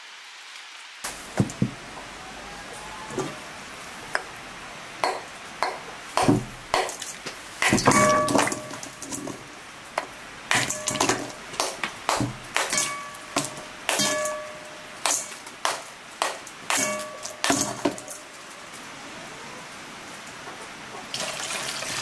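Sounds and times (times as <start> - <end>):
metal pounder crushing ice: 5.0 - 18.2
metallic ping on enamel bowl: 10.5 - 11.4, 12.6 - 15.2, 16.7 - 17.8.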